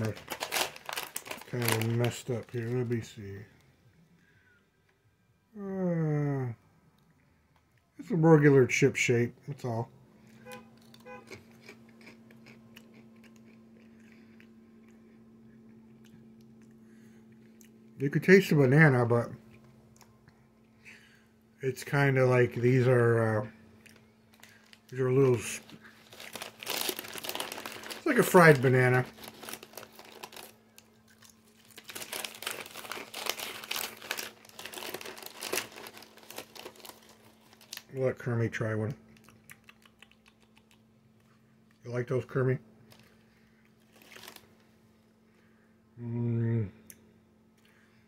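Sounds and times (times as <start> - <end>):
person chewing crunchy chips: 0.0 - 2.8, 10.7 - 17.8, 23.7 - 37.9, 39.2 - 41.4, 42.9 - 44.5
plastic bag crinkling: 0.0 - 3.1, 23.8 - 38.0, 42.9 - 43.2, 43.8 - 44.6
steady low hum: 0.0 - 48.0.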